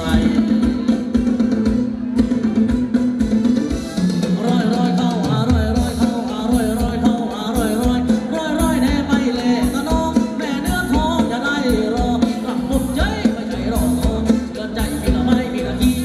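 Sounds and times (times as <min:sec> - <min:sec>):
person singing: 0:00.0 - 0:02.7, 0:03.6 - 0:16.0
steady drum beat: 0:00.0 - 0:16.0.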